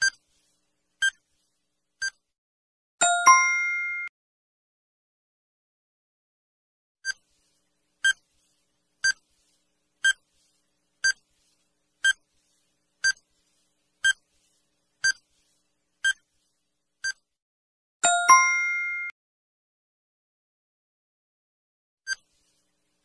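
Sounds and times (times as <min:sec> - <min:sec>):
multi-tone chime: 0:03.0 - 0:04.1, 0:18.0 - 0:19.2.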